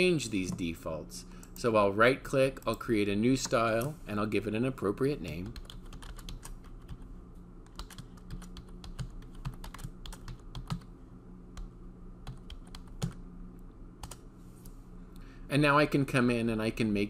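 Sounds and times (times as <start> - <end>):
typing on computer keyboard: 5.4 - 7.0, 7.7 - 10.9, 12.2 - 13.2.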